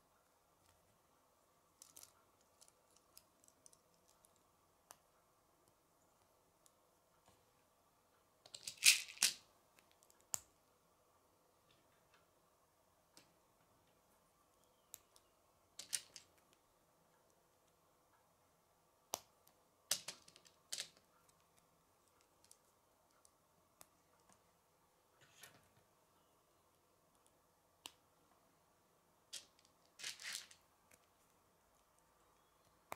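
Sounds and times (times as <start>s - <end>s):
plastic pieces snapping together: 19.9s - 21.0s.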